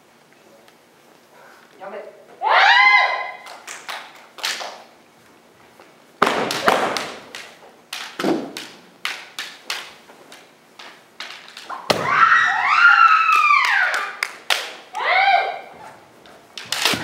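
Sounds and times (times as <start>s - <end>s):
bamboo swords clacking: 6.2s - 12.0s, 16.2s - 17.0s.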